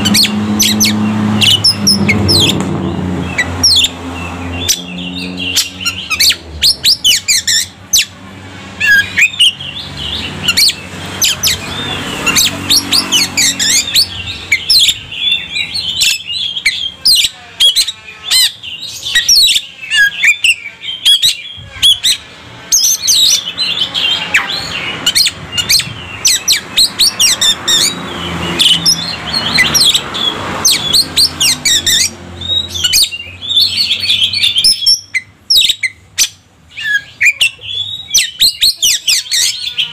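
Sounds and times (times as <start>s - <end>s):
bird singing whistled song: 30.6s - 39.9s.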